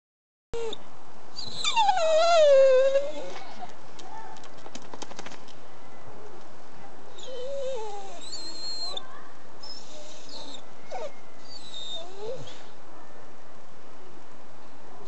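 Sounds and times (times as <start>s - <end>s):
dog whining and howling: 0.6s - 0.8s, 1.4s - 3.4s, 7.2s - 9.0s, 9.6s - 12.7s.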